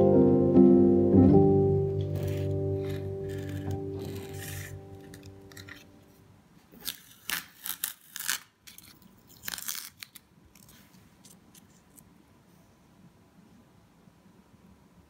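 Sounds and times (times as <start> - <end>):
masking tape crackling and tearing: 2.0 - 5.9, 6.7 - 12.0.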